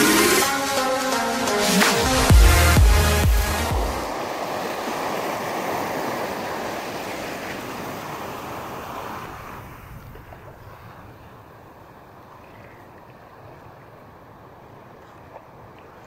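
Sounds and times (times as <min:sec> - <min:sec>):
small waves washing in surf: 0:03.6 - 0:16.0.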